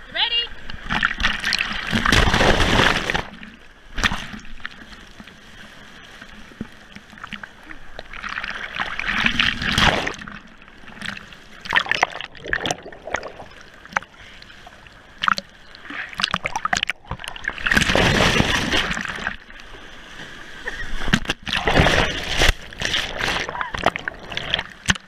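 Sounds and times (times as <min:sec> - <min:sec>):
waves rushing over camera: 0:00.0 - 0:25.0
splashes and drips: 0:00.6 - 0:05.3, 0:06.0 - 0:19.7.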